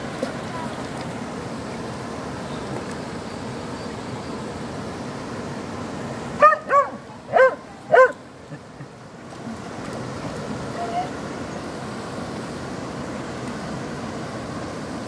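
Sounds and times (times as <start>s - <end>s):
flowing stream water: 0.0s - 15.0s
small dog barking: 6.4s - 8.2s.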